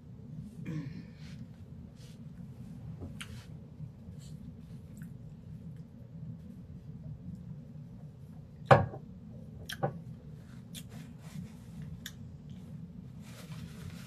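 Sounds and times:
paper napkin rustling: 13.1s - 14.0s.

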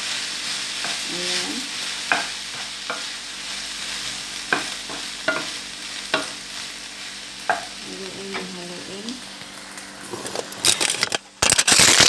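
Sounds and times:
pasta sizzling in frying pan: 0.0s - 12.0s
spatula knocking against pan: 4.5s - 6.4s.

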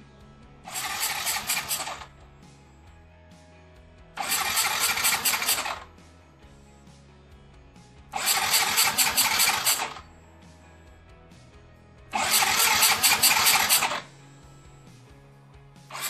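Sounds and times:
scooter engine cranking on starter: 0.7s - 2.2s, 4.2s - 6.0s, 8.1s - 10.1s, 12.1s - 14.1s.

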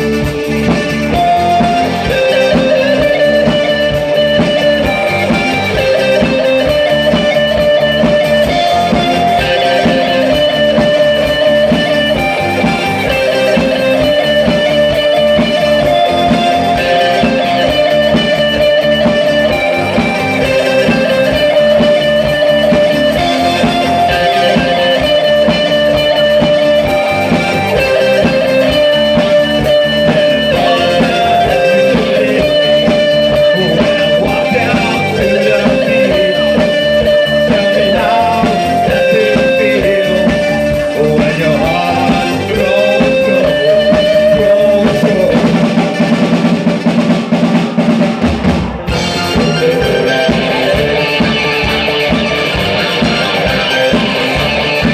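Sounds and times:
drum beat: 0.0s - 54.9s
strummed electric guitars: 0.0s - 54.9s.

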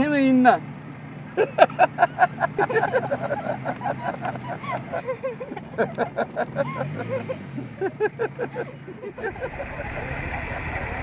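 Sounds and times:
car engine hum: 0.0s - 11.0s
woman and man laughing: 1.3s - 10.1s.

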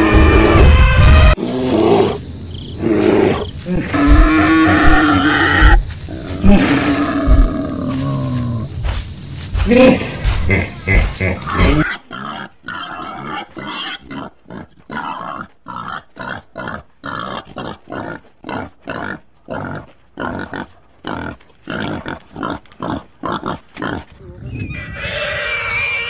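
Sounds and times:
wild boar grunting: 9.7s - 24.4s.

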